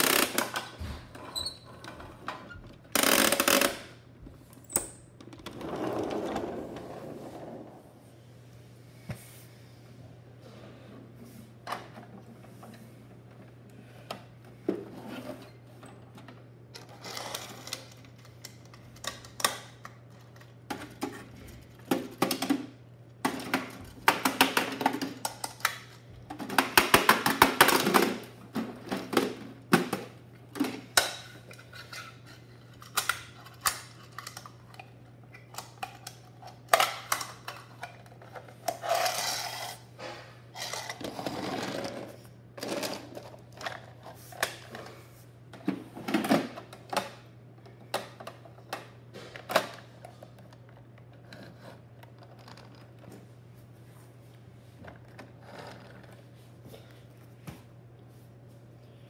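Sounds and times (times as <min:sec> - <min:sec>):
plastic toy parts clattering: 0:35.4 - 0:39.8, 0:40.6 - 0:44.1.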